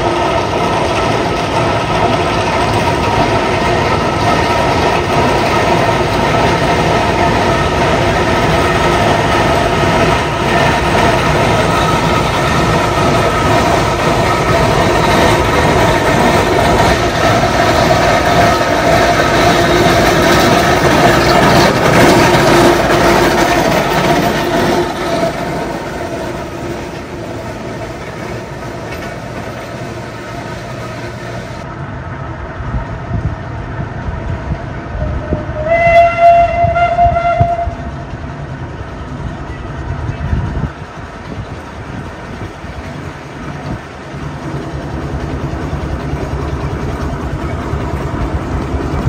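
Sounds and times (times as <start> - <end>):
steam traction engines rumbling: 0.0 - 49.0
steam whistle: 35.0 - 37.8.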